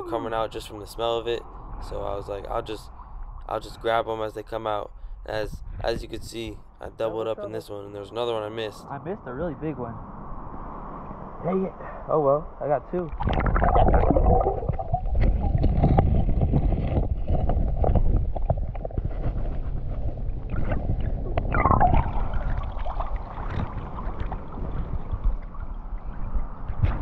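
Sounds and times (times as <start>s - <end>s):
muffled creek water sloshing underwater: 13.1s - 27.0s.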